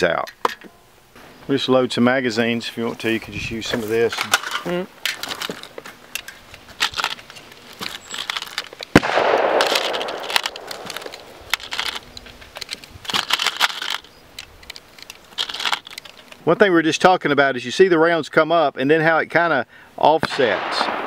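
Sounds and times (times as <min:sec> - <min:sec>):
loose cartridges rattling: 0:03.4 - 0:09.0, 0:09.6 - 0:16.4
cartridges clicking into magazines: 0:04.1 - 0:16.4
sharp loud crack: 0:08.9 - 0:11.4, 0:20.3 - 0:21.0.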